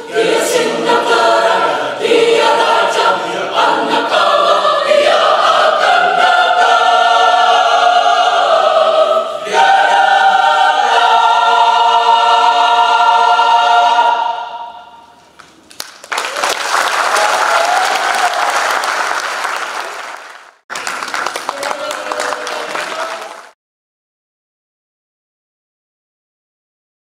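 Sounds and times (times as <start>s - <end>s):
mixed choir singing: 0.0s - 15.2s.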